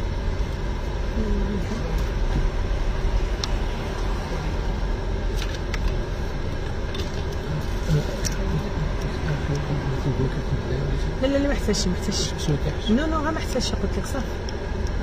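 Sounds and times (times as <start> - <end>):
car cabin rumble: 0.0 - 15.0.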